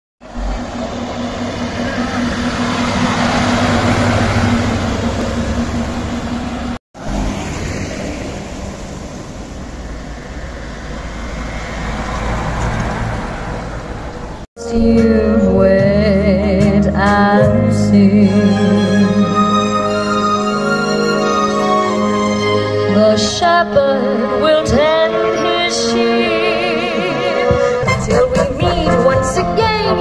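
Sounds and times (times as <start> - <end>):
vehicle engines driving past: 0.2 - 14.5.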